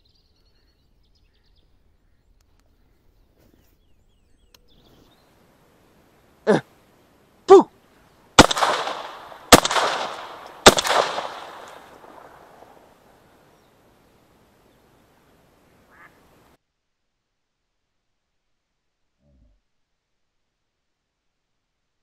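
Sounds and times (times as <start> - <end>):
shotgun shots echoing: 8.4 - 13.1
duck quacking: 15.9 - 16.2.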